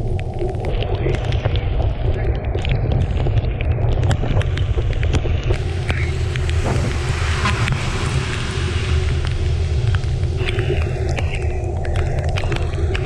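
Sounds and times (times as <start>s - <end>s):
faint steady hum: 0.0s - 13.0s
wind buffeting microphone: 0.8s - 13.0s
bike road noise: 3.2s - 13.0s.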